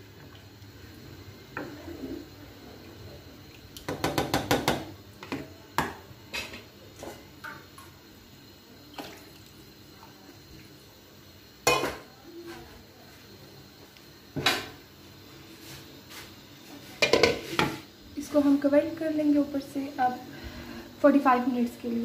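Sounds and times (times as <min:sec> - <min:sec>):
spatula tapping a metal pan: 0:03.9 - 0:04.9.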